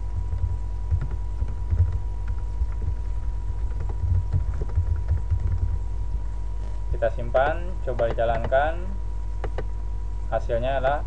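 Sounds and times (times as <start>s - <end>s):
keyboard typing: 0.0s - 5.8s, 7.9s - 8.7s, 9.4s - 9.7s
low electrical hum: 0.0s - 11.0s.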